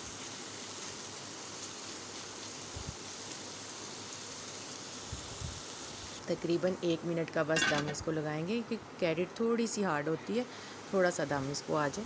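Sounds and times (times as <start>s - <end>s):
food sizzling in a pan: 0.0s - 8.2s.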